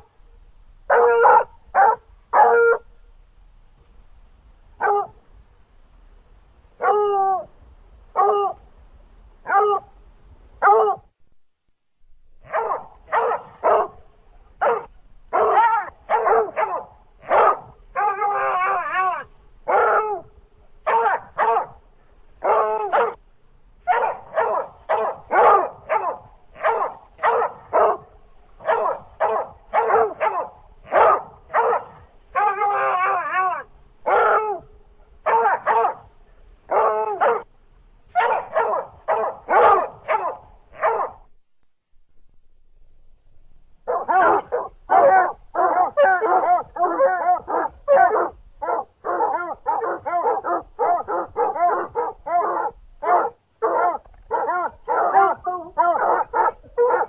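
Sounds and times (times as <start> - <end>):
dog barking: 0.9 - 2.8, 4.8 - 5.2, 6.8 - 7.4, 8.2 - 8.6, 9.4 - 9.9, 10.6 - 11.1, 12.4 - 14.0, 14.6 - 21.8, 22.4 - 23.2, 23.8 - 36.1, 36.7 - 37.5, 38.1 - 41.3, 43.9 - 57.0.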